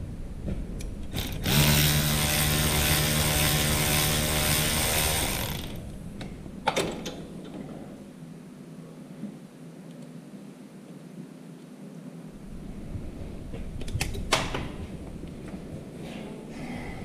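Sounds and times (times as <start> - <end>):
power tool whining: 1.1 - 5.9.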